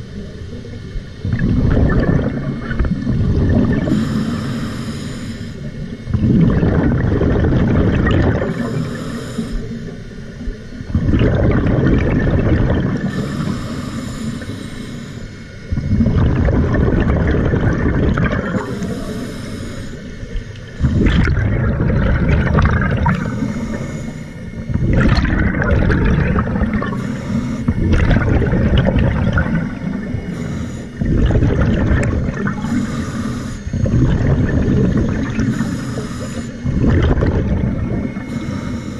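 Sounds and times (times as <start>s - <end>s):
rush of exhaust bubbles: 1.2s - 4.0s, 6.1s - 9.0s, 10.9s - 13.3s, 15.7s - 19.0s, 20.8s - 33.0s, 33.6s - 38.3s
regulator hissing inhale: 3.8s - 6.2s, 8.3s - 10.4s, 12.3s - 15.9s, 17.8s - 24.9s, 25.5s - 36.8s, 37.4s - 38.9s.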